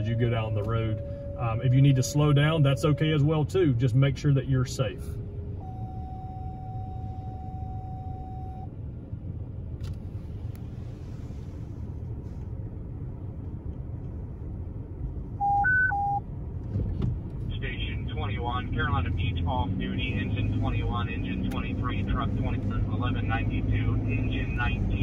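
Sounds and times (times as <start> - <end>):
three-note radio alert: 0.0 - 3.6
steady radio tone: 0.0 - 8.6, 17.5 - 25.0
engine and road rumble: 0.0 - 25.0.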